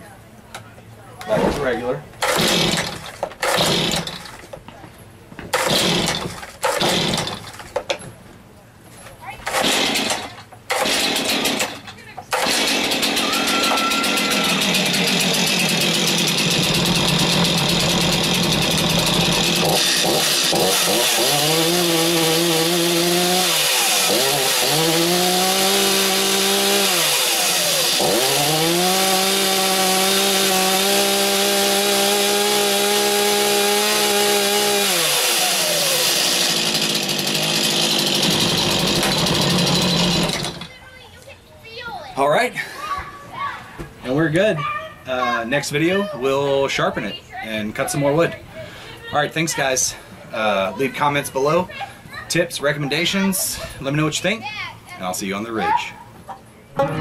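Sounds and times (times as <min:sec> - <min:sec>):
chainsaw idling and revving: 0:02.2 - 0:04.4, 0:05.6 - 0:07.6, 0:09.4 - 0:40.7.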